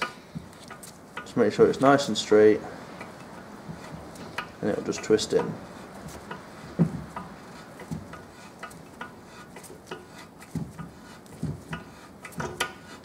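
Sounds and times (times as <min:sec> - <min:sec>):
soft knocks: 0:05.4 - 0:09.2, 0:09.9 - 0:12.8.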